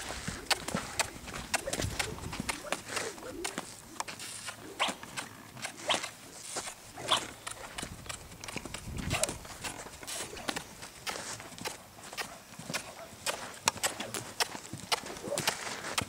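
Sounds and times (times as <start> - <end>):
soft hoofbeats on sand: 0.0 - 16.0
sharp swishes: 4.4 - 5.0, 5.6 - 7.4.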